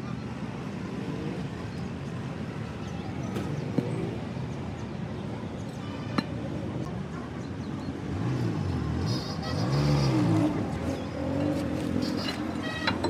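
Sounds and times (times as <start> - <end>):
vehicle engine passing by: 8.0 - 12.6.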